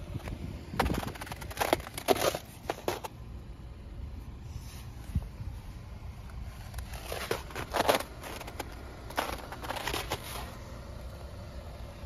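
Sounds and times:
footsteps crunching on snow: 6.3s - 10.7s.

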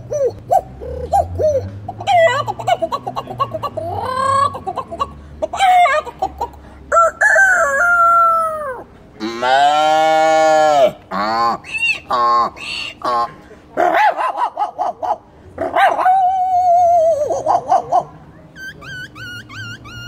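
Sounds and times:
man imitating chicken clucks: 0.0s - 20.0s
man imitating rooster crows: 6.9s - 11.0s.

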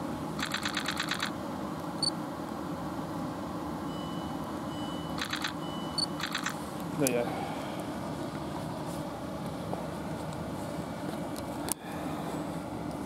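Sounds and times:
rapid door warning beeping: 3.9s - 6.6s.

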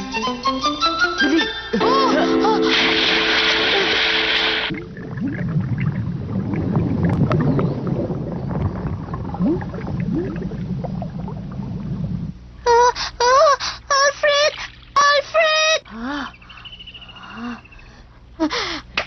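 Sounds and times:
cartoon water splash: 1.8s - 5.8s
bubbles gurgling: 2.8s - 12.6s
low muffled underwater rumble: 4.7s - 12.6s.

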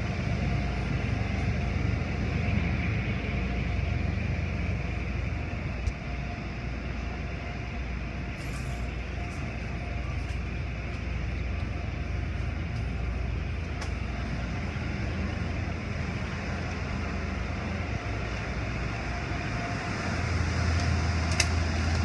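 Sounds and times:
car wash machinery rumble: 0.0s - 22.0s.

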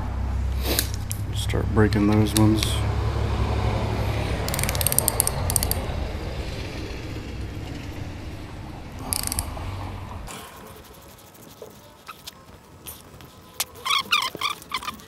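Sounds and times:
steady low hum: 0.0s - 11.4s
hand ratchet clicking: 4.4s - 5.8s, 9.0s - 9.6s.

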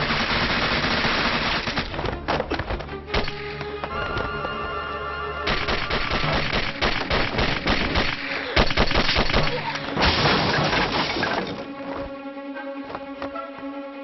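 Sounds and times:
dramatic music: 0.0s - 14.0s
pistol shots and impacts: 5.5s - 10.1s.

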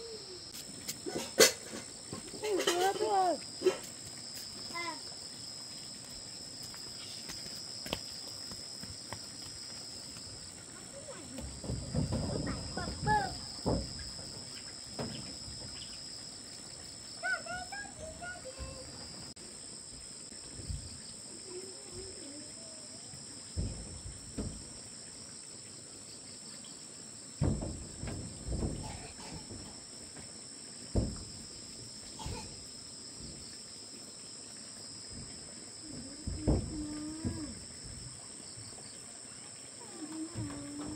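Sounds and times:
insects droning: 0.0s - 40.9s
dull knocks: 11.4s - 15.7s, 27.4s - 29.8s, 30.9s - 31.4s.

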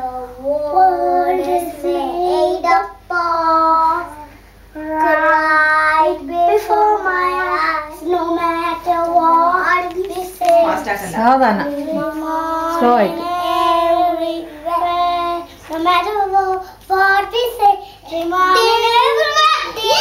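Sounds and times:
children singing: 11.9s - 20.0s.

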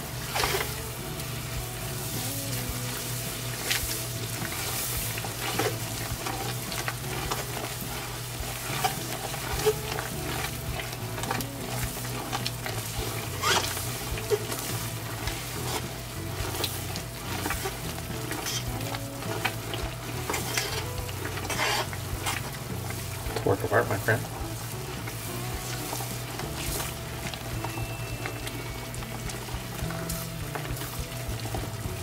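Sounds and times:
low hum: 0.0s - 32.0s
sauce sizzling in a pot: 0.0s - 32.0s
spatula scraping a pot: 2.0s - 23.2s.

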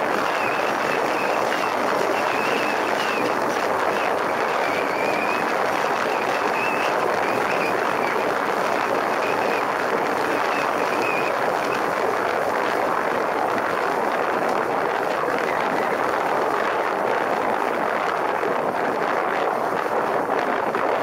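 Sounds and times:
wind rushing over microphone: 0.0s - 21.0s
faint high wavering whistle: 4.0s - 8.2s.

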